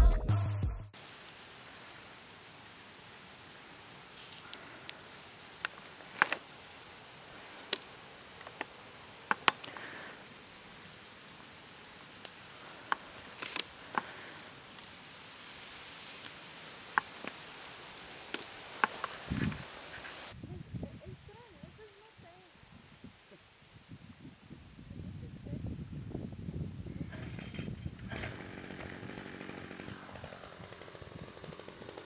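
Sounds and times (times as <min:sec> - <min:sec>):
dry vegetation rustling: 0:01.0 - 0:20.5
seed pods clicking and snapping: 0:04.2 - 0:05.0, 0:05.6 - 0:07.0, 0:07.6 - 0:09.9, 0:12.1 - 0:14.2, 0:18.3 - 0:19.2.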